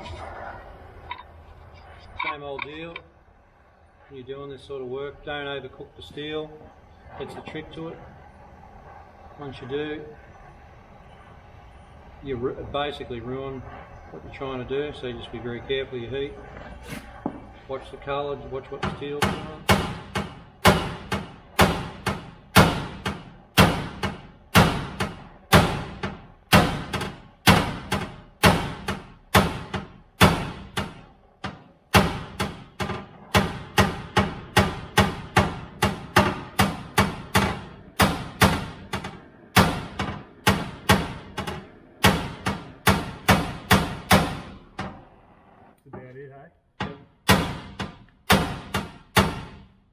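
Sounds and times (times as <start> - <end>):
hammer striking hot steel: 12.5 - 45.1, 46.8 - 49.8.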